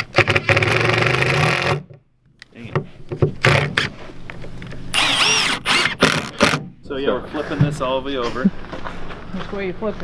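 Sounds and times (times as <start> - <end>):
cordless driver driving screws: 4.9 - 6.7.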